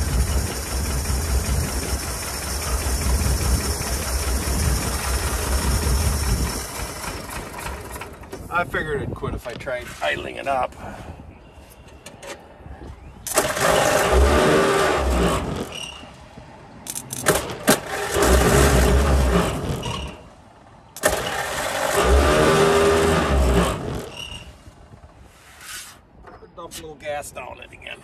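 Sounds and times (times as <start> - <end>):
truck engine cranking and sputtering: 0.0 - 9.2, 11.9 - 16.2, 16.8 - 25.2.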